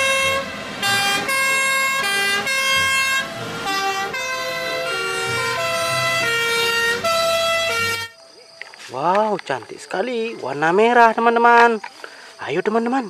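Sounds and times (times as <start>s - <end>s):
fire engine warning horns: 0.0s - 8.2s.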